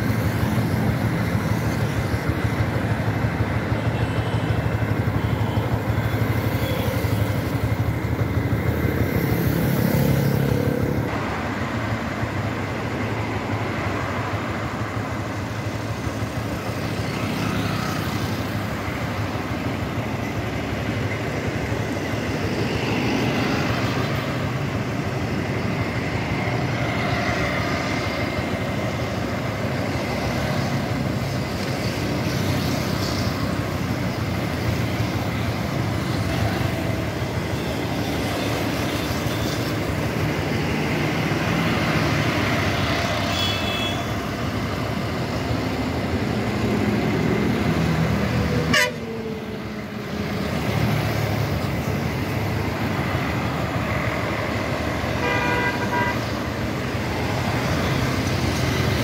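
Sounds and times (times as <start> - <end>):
road traffic rushing: 0.0 - 59.0
vehicle horns honking: 43.3 - 44.2, 48.7 - 49.1, 55.2 - 56.2.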